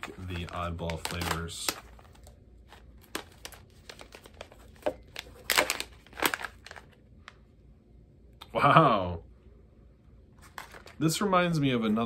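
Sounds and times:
plastic pouch crinkling: 0.0 - 7.1.

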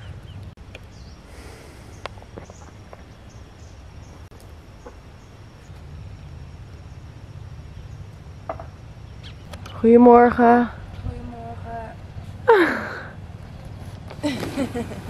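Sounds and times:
low outdoor ambience rumble: 0.0 - 15.0
bird calls: 9.0 - 10.2.

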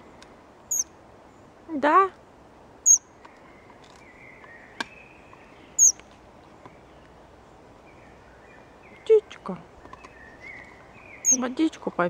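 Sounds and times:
high-pitched bird begging calls: 0.7 - 0.9, 2.8 - 3.0, 5.8 - 6.0, 10.4 - 11.6.

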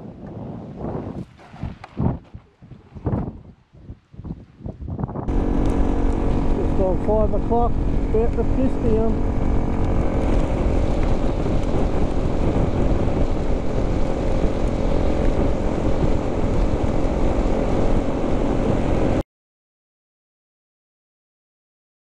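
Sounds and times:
wind rush: 0.0 - 19.2
tyre noise on gravel: 1.1 - 3.3
motorcycle engine cruising: 5.2 - 19.2.

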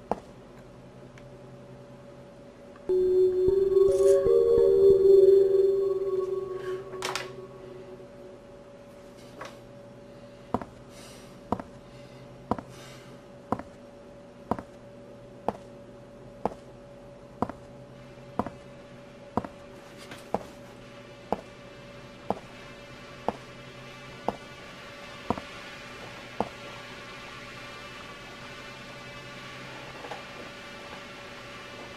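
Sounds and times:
held tones: 2.9 - 8.6
low hum: 2.9 - 9.1.

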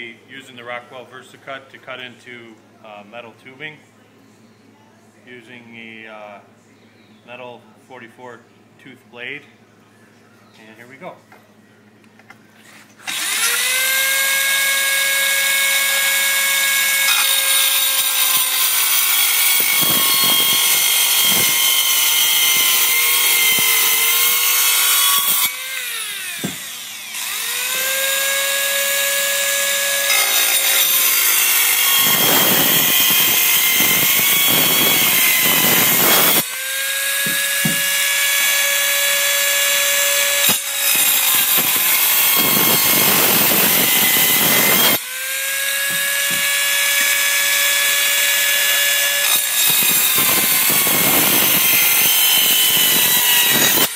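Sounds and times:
circular saw cutting metal: 13.0 - 53.9.

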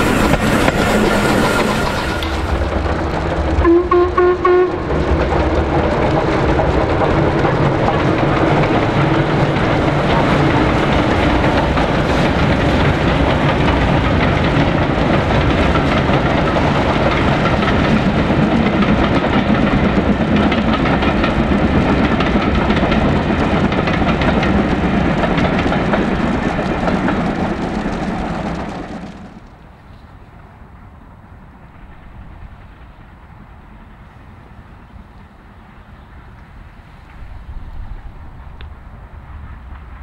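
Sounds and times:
rolling train wheels: 0.0 - 40.0
steam locomotive passing: 0.0 - 40.0.

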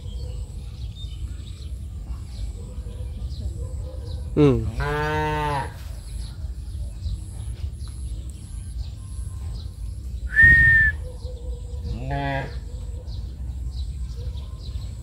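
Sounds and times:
high-pitched whistle: 10.3 - 11.0.

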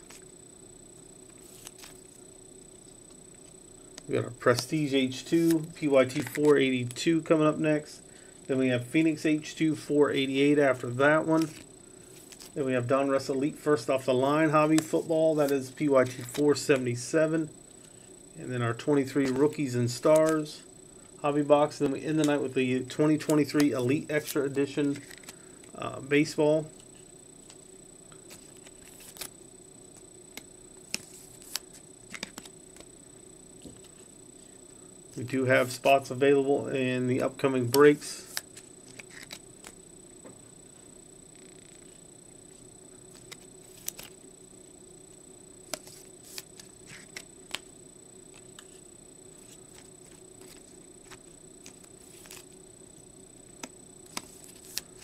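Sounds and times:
faint steady hum: 0.0 - 55.0
high whine: 0.0 - 55.0
cards clicking and tapping: 5.5 - 6.6, 16.1 - 16.4, 23.0 - 25.4, 30.3 - 32.9, 37.2 - 39.8, 43.2 - 44.1, 45.7 - 47.7, 49.4 - 52.4, 53.6 - 55.0.

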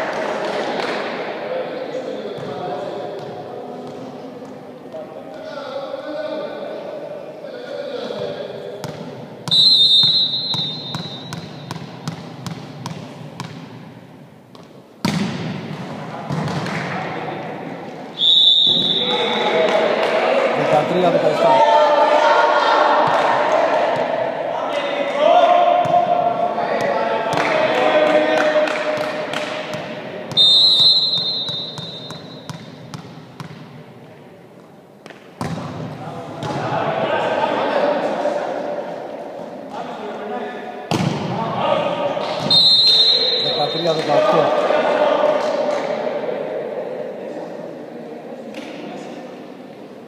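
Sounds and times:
volleyball bouncing on gym floor: 8.2 - 13.9, 14.5 - 16.9, 31.1 - 33.8, 35.0 - 36.7, 40.9 - 41.4
referee's whistle: 9.5 - 11.7, 18.2 - 19.6, 30.4 - 32.5, 42.4 - 44.0
voices and shouting: 18.7 - 28.9.

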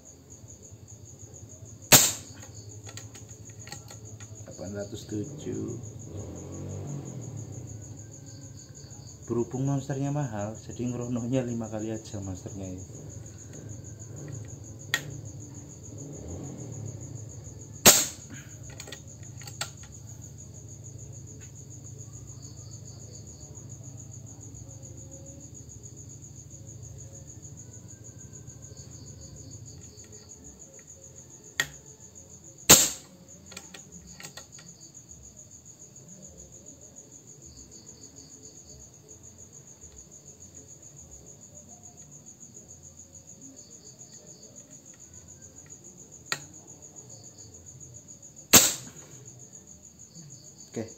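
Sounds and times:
crickets chirping: 0.0 - 50.9
air rifle shots: 1.9 - 3.0, 17.8 - 18.4, 32.7 - 33.1, 48.5 - 49.1.

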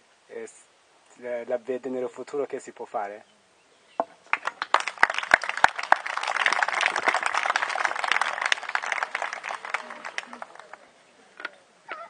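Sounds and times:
audience applauding: 4.3 - 10.9.

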